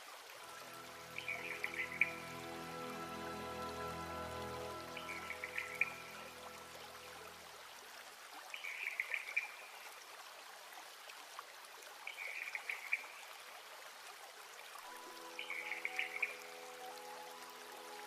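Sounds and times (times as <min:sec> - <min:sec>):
trickling water: 0:00.0 - 0:18.0
background music: 0:00.4 - 0:07.6, 0:14.8 - 0:18.0.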